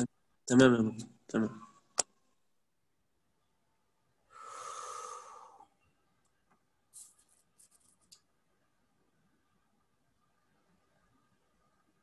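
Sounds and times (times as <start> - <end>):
short breathy hiss: 4.3 - 5.7.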